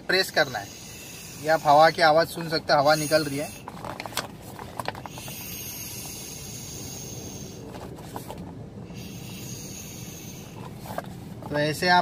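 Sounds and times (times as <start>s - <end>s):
air hissing out of a valve: 0.4s - 2.1s, 2.8s - 3.7s, 5.0s - 7.7s, 8.9s - 11.2s.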